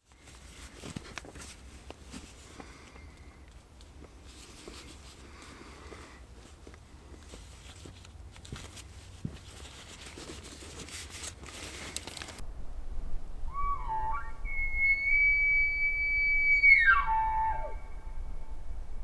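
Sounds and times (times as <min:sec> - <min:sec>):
gear rustling and clicking: 0:00.0 - 0:12.4
elk bugle call whistle: 0:13.5 - 0:18.1.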